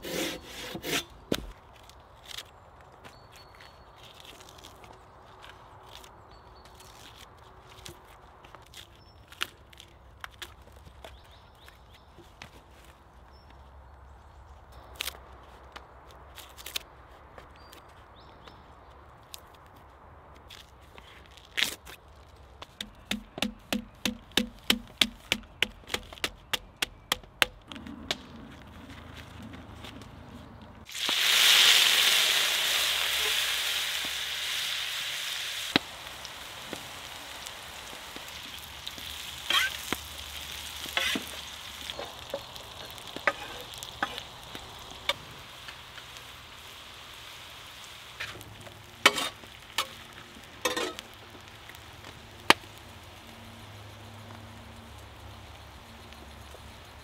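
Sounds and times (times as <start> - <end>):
wooden mallet tapping on log: 22.8 - 27.6
potatoes sizzling on griddle pan: 30.9 - 57.0.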